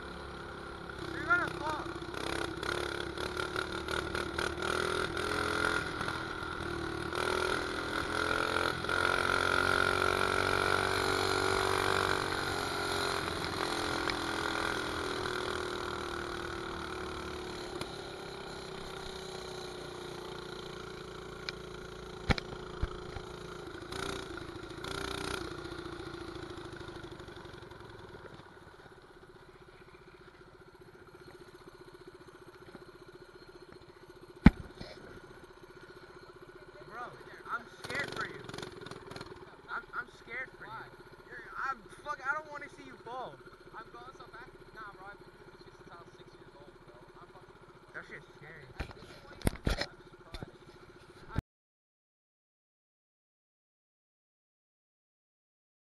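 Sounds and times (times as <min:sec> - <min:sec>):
mini bike engine revving: 0:00.0 - 0:51.4.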